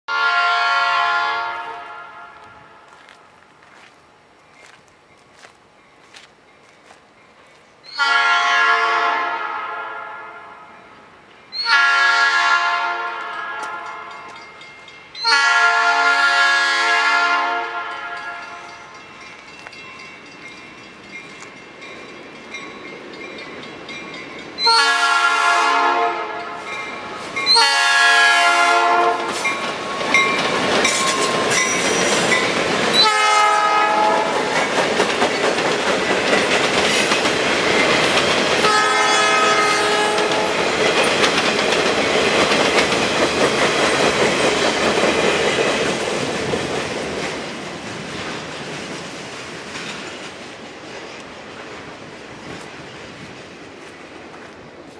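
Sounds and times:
locomotive horn blasts: 0.1s - 2.9s, 7.9s - 10.8s, 11.6s - 14.2s, 15.2s - 18.7s, 24.6s - 26.6s, 27.5s - 29.5s, 33.0s - 34.5s, 38.6s - 40.6s
freight train rumbling on rails: 0.1s - 54.9s.

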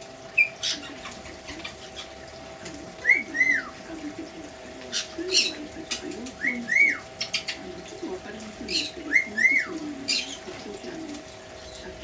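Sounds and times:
parrot whistled calls: 3.0s - 3.7s, 6.4s - 7.5s, 8.7s - 10.4s.

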